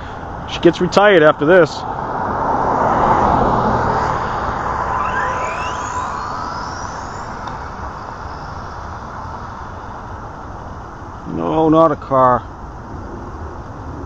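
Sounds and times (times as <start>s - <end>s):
vehicle passing: 1.7s - 11.0s
thin rising whine: 1.8s - 11.8s.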